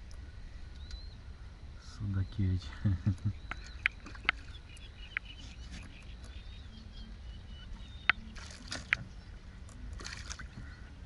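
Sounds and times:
low steady rumble: 0.0s - 11.0s
fish splashing at water surface: 10.0s - 10.5s.

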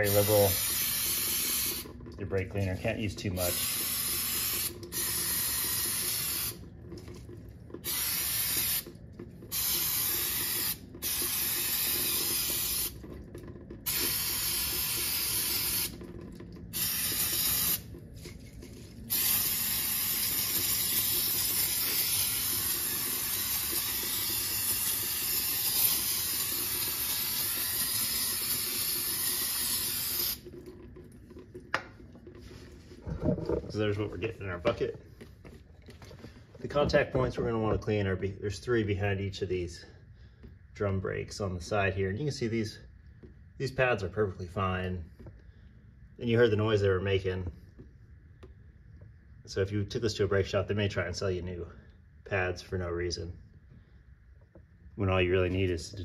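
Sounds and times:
aerosol can spraying: 0.0s - 1.9s, 3.5s - 6.6s, 7.8s - 8.9s, 9.5s - 13.0s, 13.8s - 16.0s, 16.7s - 17.9s, 19.1s - 30.4s.

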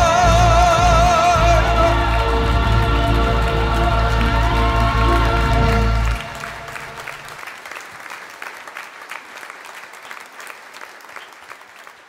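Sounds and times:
audience applauding: 0.0s - 12.0s
music chord: 1.3s - 7.4s.

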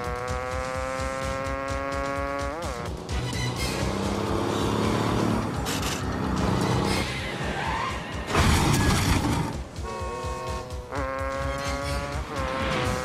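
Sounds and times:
driving action music score: 0.0s - 13.0s
diesel truck engine running hard: 2.8s - 12.7s
loud crash with skidding: 8.3s - 9.6s.

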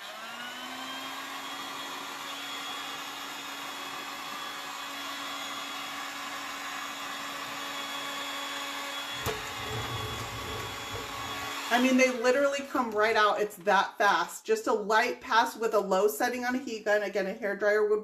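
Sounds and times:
heat gun fan whining hum: 0.0s - 12.2s.

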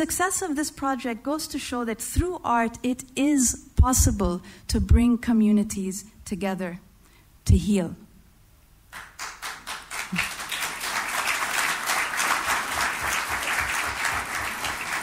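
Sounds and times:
audience applauding: 8.9s - 15.0s.

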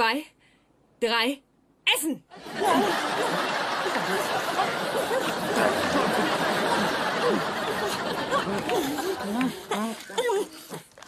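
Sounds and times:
studio audience laughing: 2.3s - 9.6s.

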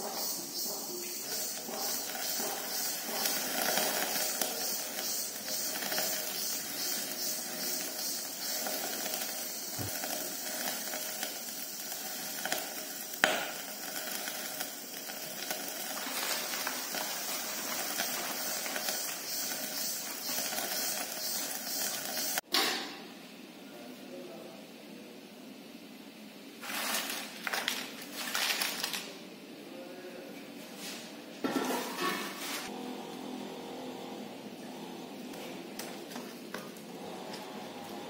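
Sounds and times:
pot boiling and bubbling: 0.0s - 22.5s, 32.0s - 38.0s.

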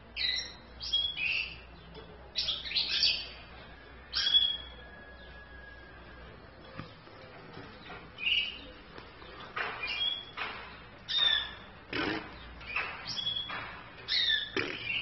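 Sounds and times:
finches chirping: 7.8s - 15.0s.

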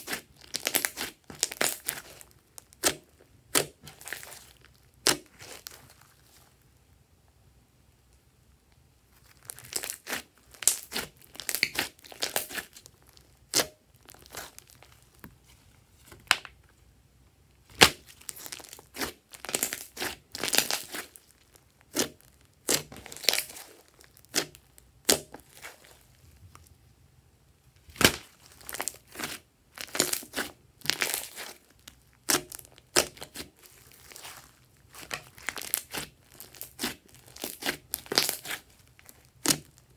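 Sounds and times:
slime sticky pops and crackles: 32.2s - 39.8s.

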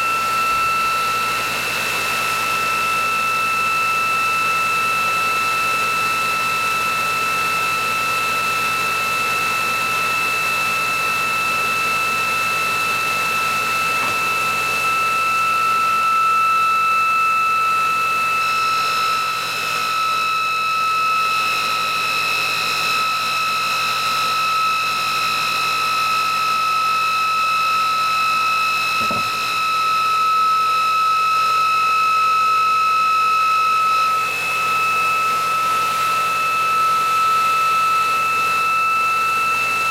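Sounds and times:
electric motor whine: 0.0s - 39.9s
higher whine: 12.6s - 16.5s, 29.0s - 29.6s.

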